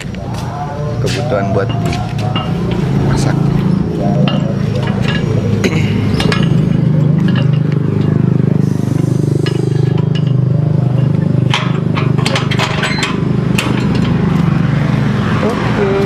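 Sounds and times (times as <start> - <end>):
steady low rumble: 0.0 - 16.0
metal gate clinking and latching: 3.7 - 8.5, 9.4 - 14.6.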